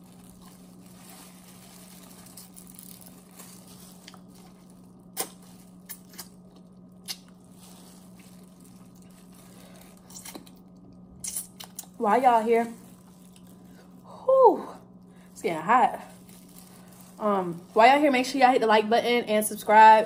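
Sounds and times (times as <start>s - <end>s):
steady low hum: 0.0s - 20.0s
person chewing food: 2.4s - 11.9s.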